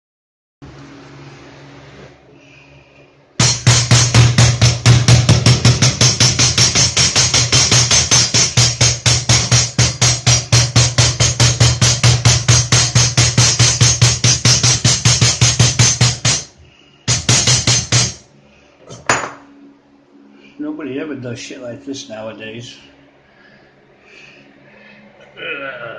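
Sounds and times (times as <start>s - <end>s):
hammer striking metal: 3.4s - 18.3s.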